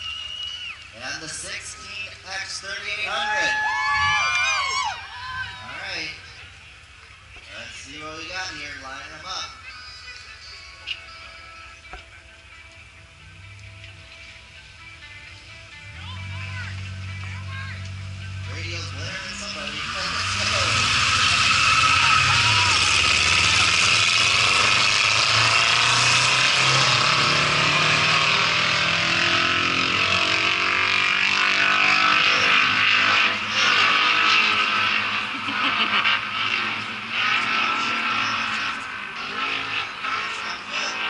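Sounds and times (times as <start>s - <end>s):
racing car engines: 0.0s - 41.0s.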